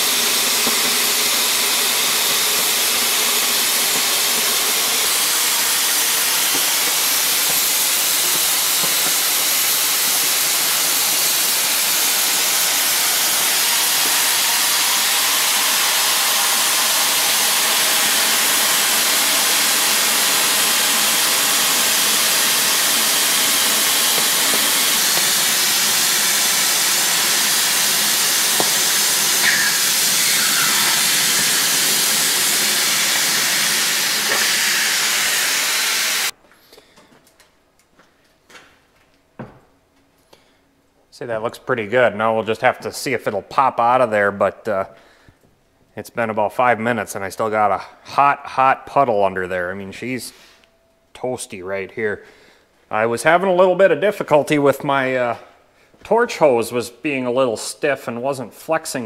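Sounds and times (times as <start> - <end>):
cutting torch hissing: 0.0 - 36.4.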